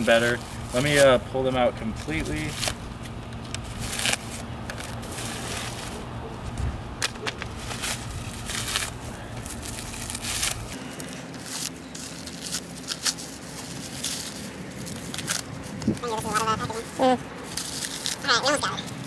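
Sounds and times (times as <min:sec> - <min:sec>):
packaging tearing and crinkling: 0:02.0 - 0:06.0, 0:07.0 - 0:16.4, 0:17.4 - 0:19.0.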